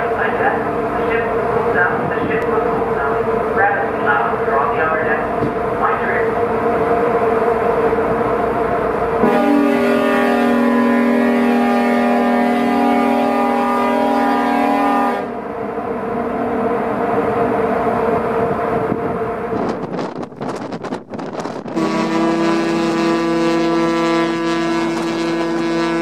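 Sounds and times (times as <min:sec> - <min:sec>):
ship engine drone: 0:00.0 - 0:26.0
ferry horn long blast: 0:09.2 - 0:15.4, 0:21.7 - 0:26.0.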